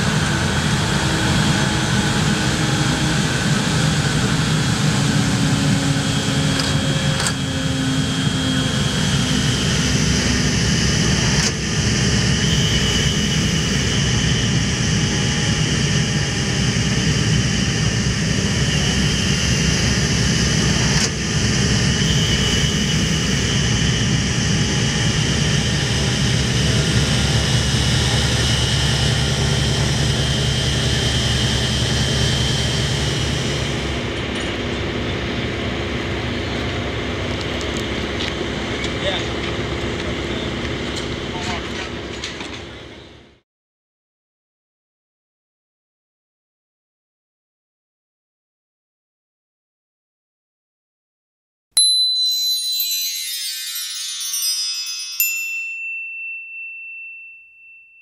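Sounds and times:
aircraft propeller engines droning: 0:00.0 - 0:43.4.

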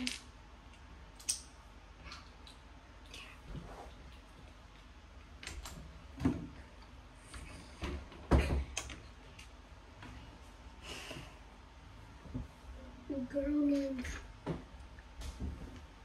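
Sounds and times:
knocks and thumps: 0:06.2 - 0:06.6, 0:07.8 - 0:08.8, 0:14.4 - 0:15.9.

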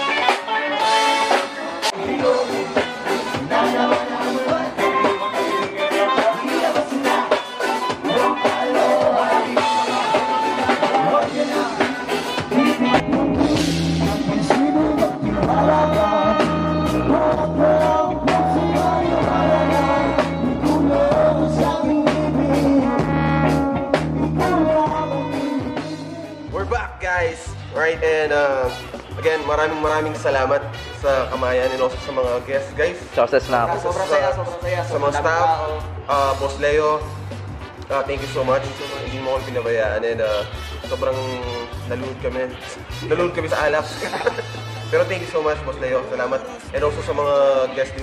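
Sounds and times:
person singing: 0:00.0 - 0:26.6
saxophone: 0:00.0 - 0:26.6, 0:28.4 - 0:35.3, 0:37.5 - 0:46.8
bass line: 0:00.0 - 0:48.0
live ska band playing: 0:00.0 - 0:48.0.

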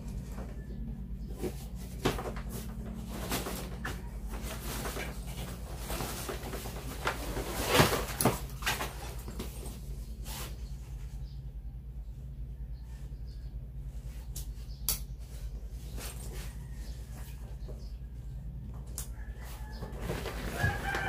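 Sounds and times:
steady low hum: 0:00.0 - 0:20.6
plastic wrapping rustling: 0:01.4 - 0:10.7, 0:19.5 - 0:21.0.

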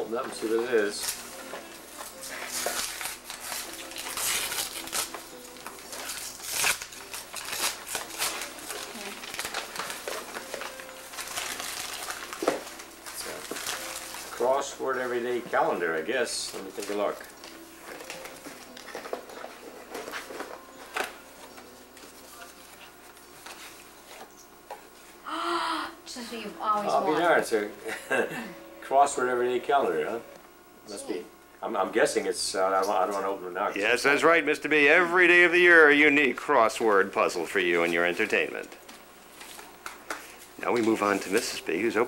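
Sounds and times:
wrapping paper tearing and crinkling: 0:00.9 - 0:15.2, 0:16.3 - 0:23.9, 0:39.3 - 0:42.0.

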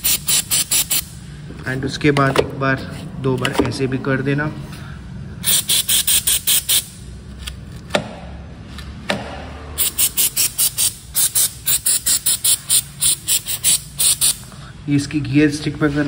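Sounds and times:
aerosol spray puffs: 0:05.4 - 0:06.9, 0:09.8 - 0:14.4.

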